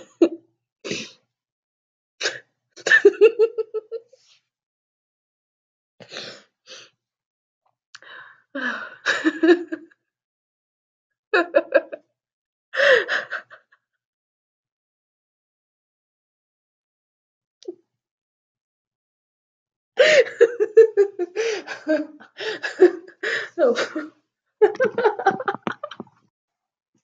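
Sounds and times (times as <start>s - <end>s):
woman laughing breathily: 8.0s - 9.8s, 11.4s - 12.0s, 12.8s - 13.7s, 20.0s - 26.0s.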